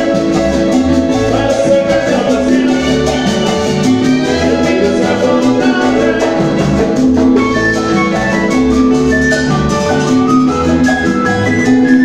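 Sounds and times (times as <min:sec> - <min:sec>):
congas: 0:00.0 - 0:12.0
latin dance band playing: 0:00.0 - 0:12.0.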